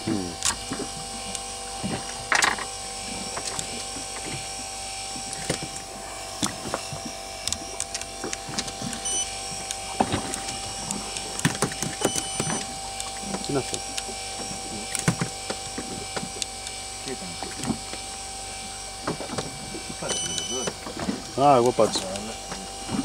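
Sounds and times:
fishing reel motor whining: 0:00.0 - 0:23.0.

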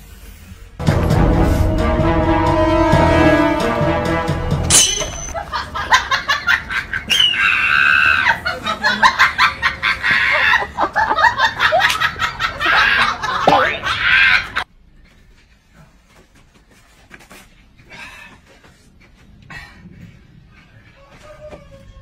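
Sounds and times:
laughter: 0:05.4 - 0:07.4, 0:08.0 - 0:14.6.

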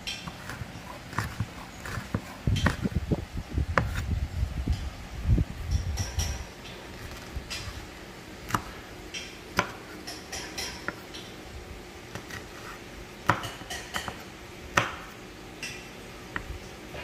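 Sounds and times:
knife chopping on wooden board: 0:00.0 - 0:02.9, 0:03.8 - 0:04.0, 0:08.4 - 0:11.1, 0:12.1 - 0:16.6.

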